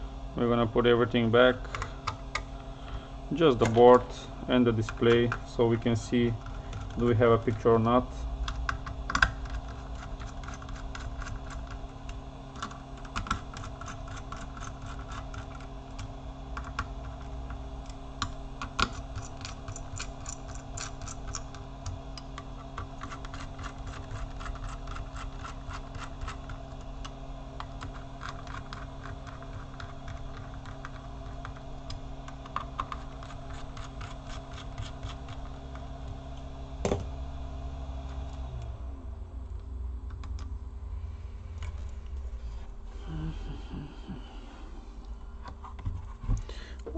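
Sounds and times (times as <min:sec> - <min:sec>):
steady low hum: 0:00.0 - 0:46.9.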